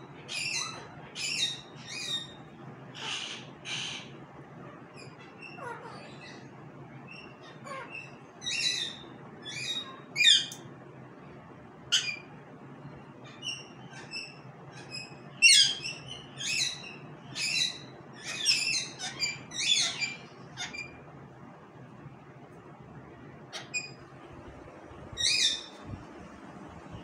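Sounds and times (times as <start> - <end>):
parakeet chirps and squawks: 0.2 - 10.6, 11.9 - 12.4, 13.0 - 21.1, 23.4 - 24.4, 25.0 - 26.0.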